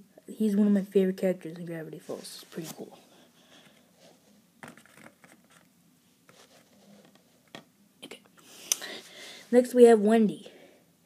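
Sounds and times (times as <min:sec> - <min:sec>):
faint rustling: 0:01.9 - 0:07.6.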